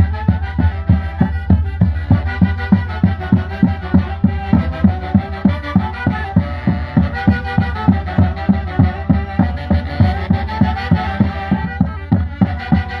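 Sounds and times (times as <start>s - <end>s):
steady drum beat: 0.0s - 13.0s
sustained melody line: 0.0s - 13.0s.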